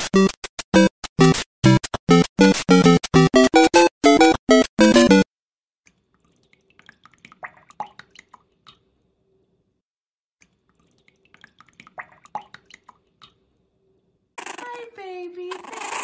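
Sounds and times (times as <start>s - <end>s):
small water splashes and drips: 5.8s - 9.6s, 10.4s - 13.6s.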